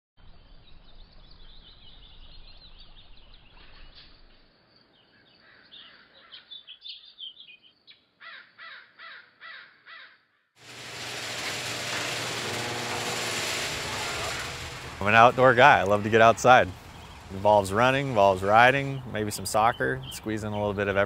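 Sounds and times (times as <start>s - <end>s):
birds chirping and calling: 5.0s - 7.7s, 14.5s - 21.0s
downward sweeping bird calls: 10.7s - 21.0s.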